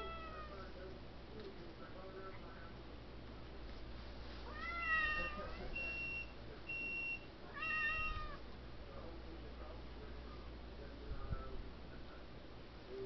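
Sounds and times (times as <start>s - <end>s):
cat meowing: 0.0s - 0.6s, 4.5s - 5.6s, 7.5s - 8.4s.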